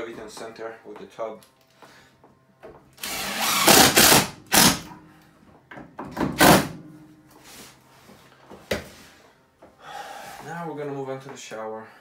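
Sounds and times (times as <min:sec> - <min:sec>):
cordless drill whirring: 0:03.0 - 0:04.8.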